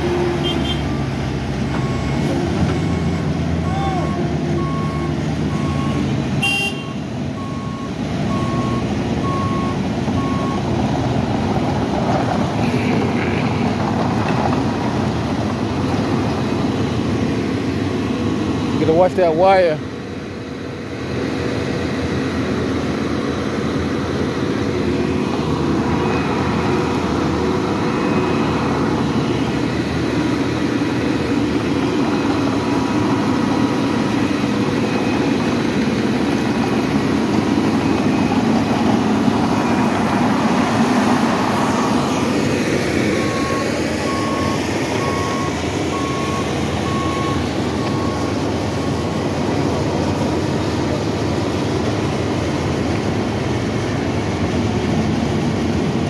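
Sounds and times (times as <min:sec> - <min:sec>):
reversing alarm beeping: 0:00.0 - 0:10.7, 0:25.0 - 0:36.8, 0:37.6 - 0:39.9, 0:41.4 - 0:49.3
diesel machinery running: 0:00.0 - 0:56.0.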